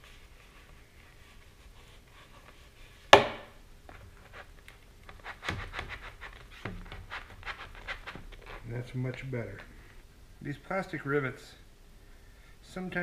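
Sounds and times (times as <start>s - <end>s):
tape rubbing and scraping: 0.0s - 3.2s, 3.9s - 9.7s
sharp knock: 3.1s - 3.6s.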